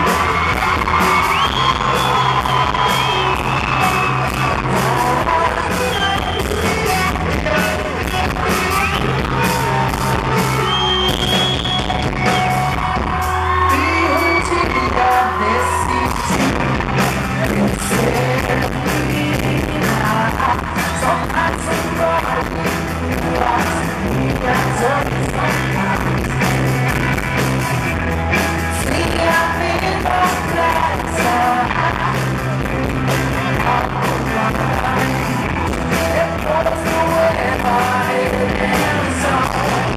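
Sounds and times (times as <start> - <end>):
drum beat: 0.0 - 13.4
woman singing lead: 0.0 - 26.6, 28.7 - 39.9
electric guitars: 0.0 - 39.9.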